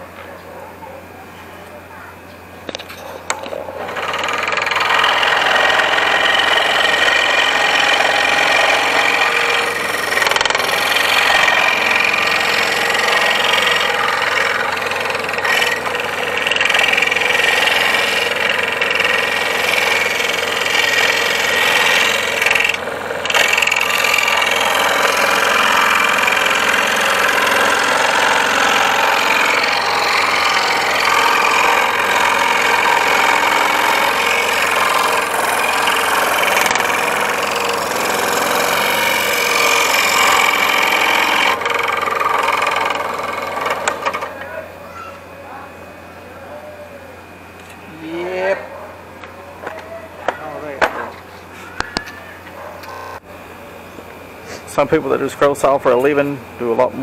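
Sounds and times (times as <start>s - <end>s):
scroll saw cutting wood: 3.0s - 44.6s.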